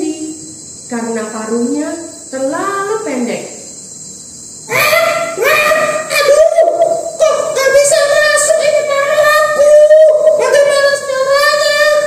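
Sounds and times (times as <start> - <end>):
high voice singing: 4.7 - 12.0.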